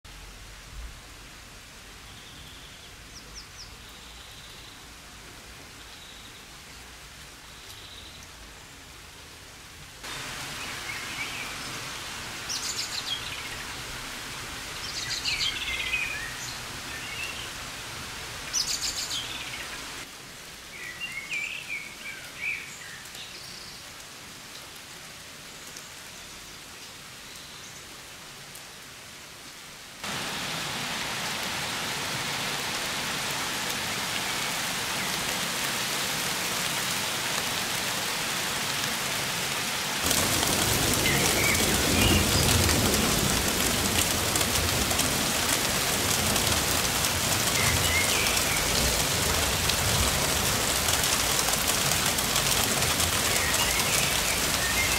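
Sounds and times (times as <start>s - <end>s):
steady rain falling: 0.0s - 54.9s
birds chirping and warbling: 14.8s - 17.6s, 18.5s - 20.0s, 40.5s - 42.8s, 47.2s - 49.6s, 51.1s - 54.9s.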